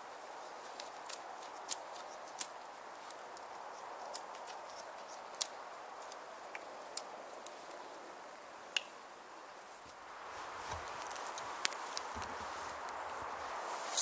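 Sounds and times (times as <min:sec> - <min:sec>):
faint outdoor hiss: 0:00.0 - 0:14.0
dry wood clicking: 0:00.7 - 0:07.6.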